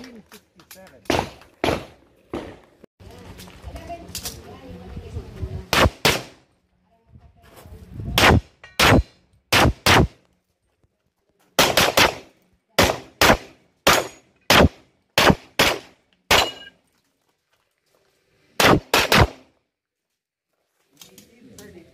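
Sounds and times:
pistol shots: 1.1s - 2.6s, 5.7s - 6.4s, 8.2s - 10.2s, 11.6s - 16.7s, 18.6s - 19.5s.

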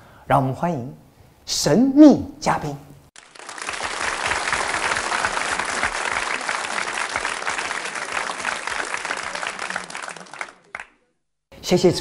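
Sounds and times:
crowd applause: 3.2s - 11.0s.

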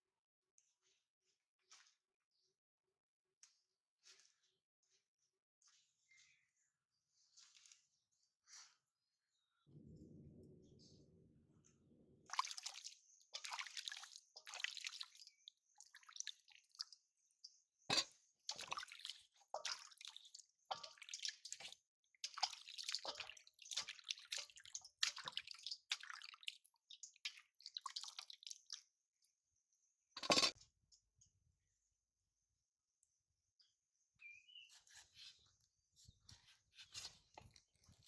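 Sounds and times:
water splashing and dripping: 12.3s - 17.0s, 17.9s - 28.9s.

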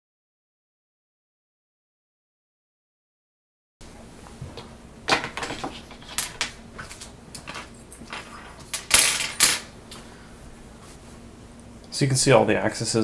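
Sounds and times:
faint steady hum: 3.8s - 13.0s
small objects knocking and clattering: 5.1s - 9.7s.

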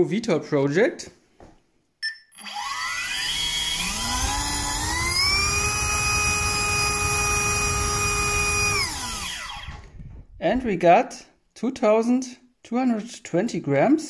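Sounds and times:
electric motor whine: 2.4s - 9.9s.

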